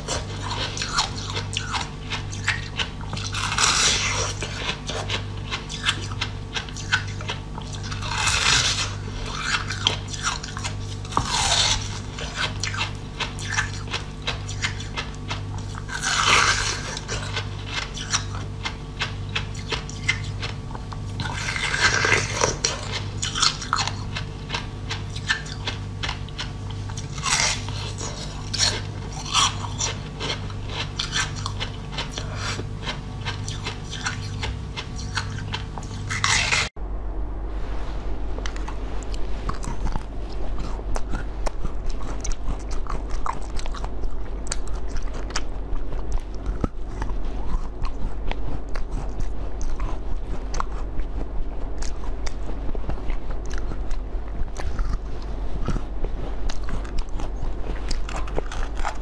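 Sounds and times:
ice crunching being bitten: 0.0 - 20.6, 21.2 - 36.6.

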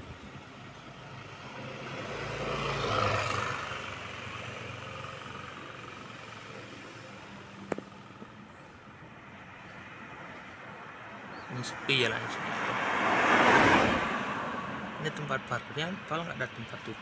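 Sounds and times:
vehicle driving past: 1.0 - 8.3, 11.6 - 15.8.

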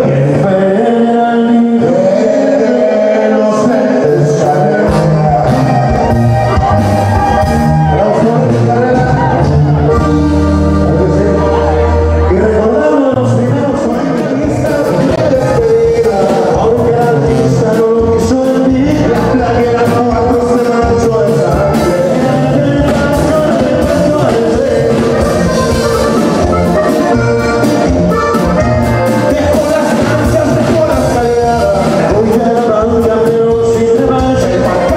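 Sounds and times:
bass: 0.0 - 34.9
button accordion melody: 0.0 - 34.9
drums: 0.0 - 34.9
man singing: 0.0 - 34.9
twelve-string guitar: 0.0 - 34.9.

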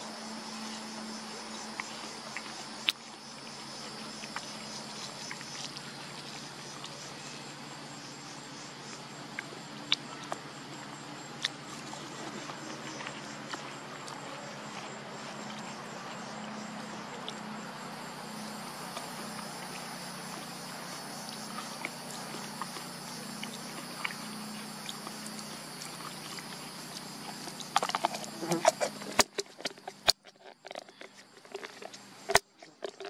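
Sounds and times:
high insect drone: 0.0 - 30.1.

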